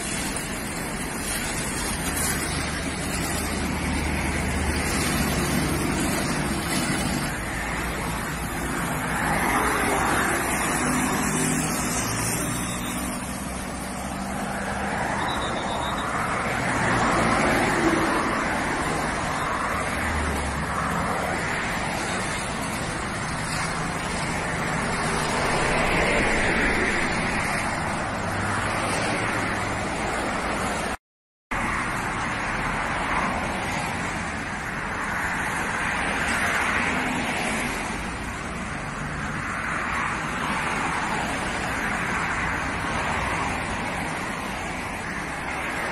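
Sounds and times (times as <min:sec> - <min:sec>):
highway traffic rushing past: 0:00.0 - 0:45.9.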